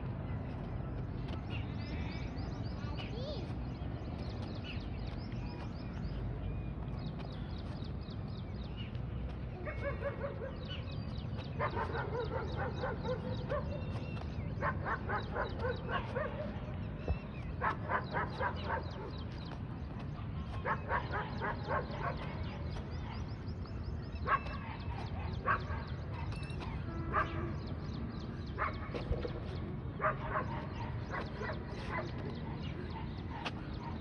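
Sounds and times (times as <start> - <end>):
dog barking: 9.6 - 10.7, 11.6 - 13.8, 14.6 - 16.6, 17.6 - 19.2, 20.6 - 23.2, 24.2 - 27.6, 28.6 - 29.0, 30.0 - 34.0.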